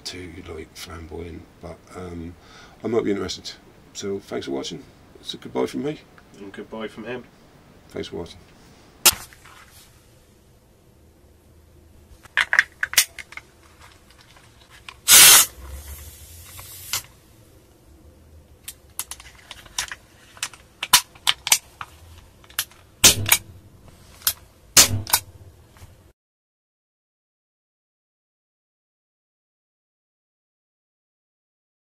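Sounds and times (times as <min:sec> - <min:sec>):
small clicks of parts handled: 0:12.2 - 0:15.0, 0:18.6 - 0:22.9, 0:24.1 - 0:24.4
gas hissing from capsule: 0:15.0 - 0:17.1
pistol mechanism clicks and snaps: 0:18.6 - 0:21.7, 0:22.5 - 0:23.6, 0:24.2 - 0:25.3.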